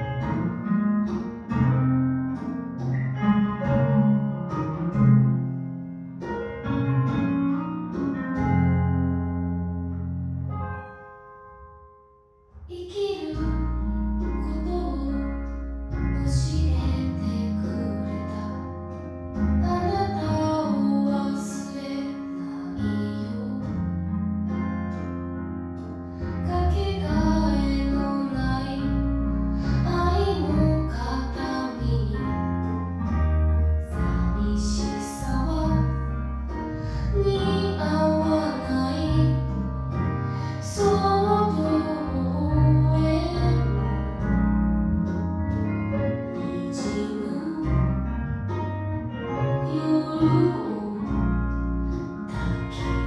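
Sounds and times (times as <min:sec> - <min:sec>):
instrumental accompaniment: 0:00.0 - 0:53.0
woman singing slow song: 0:12.7 - 0:18.7, 0:19.6 - 0:23.8, 0:26.4 - 0:32.4, 0:34.0 - 0:36.1, 0:36.9 - 0:44.1, 0:46.4 - 0:48.1, 0:49.6 - 0:51.5.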